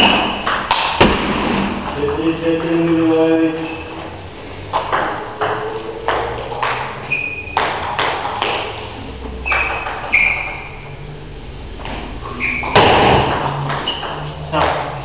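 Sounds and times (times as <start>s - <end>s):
shoe squeaks: 3.6s - 4.2s, 5.5s - 8.4s, 9.3s - 11.0s, 12.1s - 14.6s.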